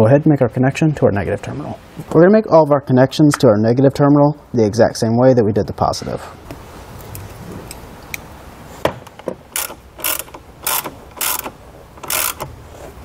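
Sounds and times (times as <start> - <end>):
hand ratchet clicking: 9.1 - 12.6.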